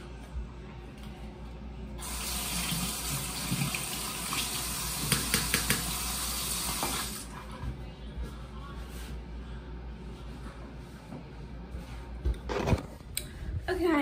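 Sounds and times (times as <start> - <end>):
water running into sink: 2.0 - 7.3.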